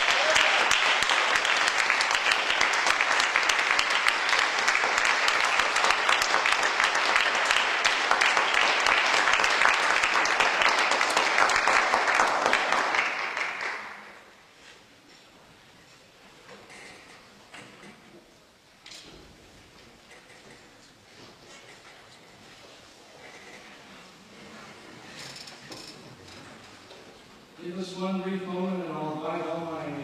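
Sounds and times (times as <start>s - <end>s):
audience applauding: 0.0s - 14.3s.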